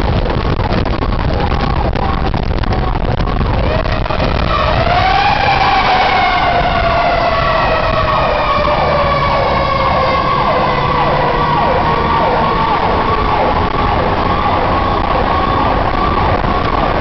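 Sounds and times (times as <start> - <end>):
truck engine and road rumble: 0.0 - 17.0
falling siren tone: 3.5 - 17.0
sweeping siren: 3.5 - 17.0.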